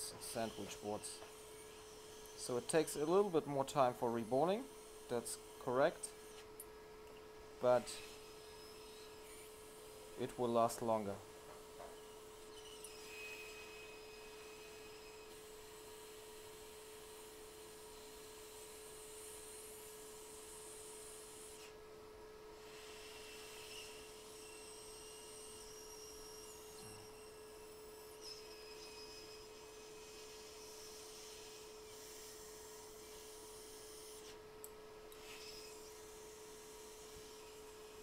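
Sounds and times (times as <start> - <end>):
hot air rework station humming: 0.0 - 15.9.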